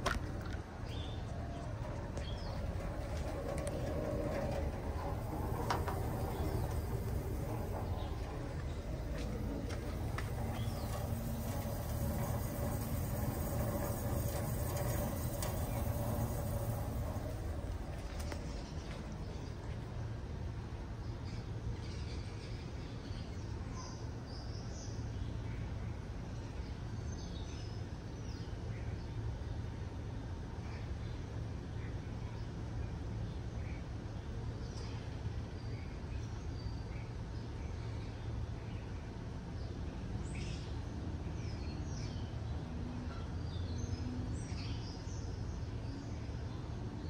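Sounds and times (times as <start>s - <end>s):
steady low rumble: 0.0s - 21.1s
heat pump humming: 0.0s - 21.7s
small birds chirping: 0.8s - 20.1s.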